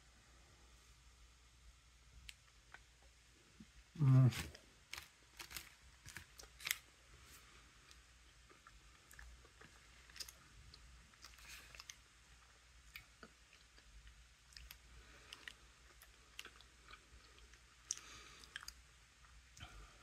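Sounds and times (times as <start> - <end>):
person chewing: 7.8 - 19.8.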